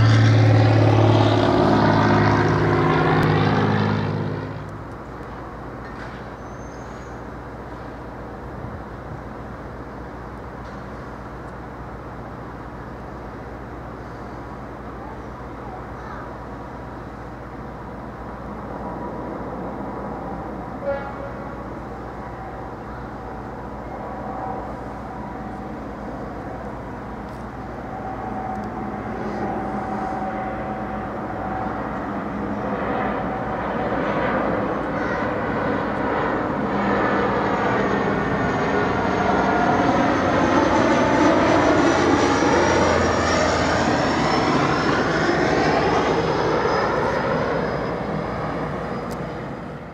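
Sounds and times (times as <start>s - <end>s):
turboprop engines droning: 0.0s - 49.9s
high whine sliding down: 21.5s - 33.6s.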